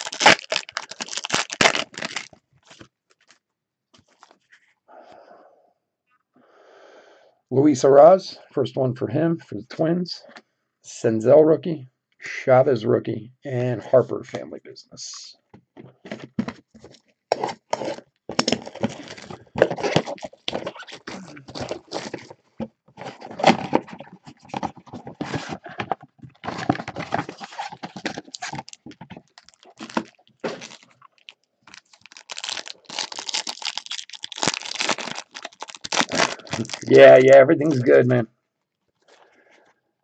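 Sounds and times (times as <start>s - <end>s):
cardboard tearing: 0.0s - 2.8s, 16.1s - 22.4s, 23.0s - 31.0s, 31.7s - 37.9s
foil wrapper crinkling: 0.0s - 3.4s, 16.2s - 22.3s, 26.4s - 38.0s.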